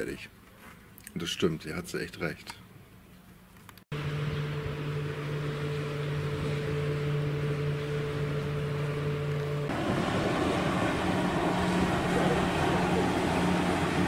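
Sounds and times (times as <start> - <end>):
motorboat engine droning: 3.9 - 14.0.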